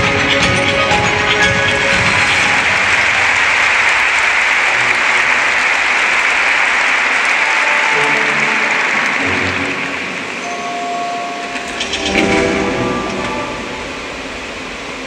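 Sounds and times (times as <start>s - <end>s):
audience applauding: 0.0s - 14.7s
show music: 0.0s - 15.0s.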